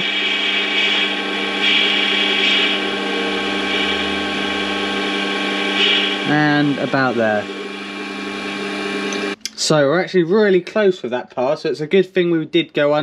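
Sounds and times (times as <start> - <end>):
lathe whine: 0.0 - 9.4
cutting tool hiss: 1.6 - 9.3.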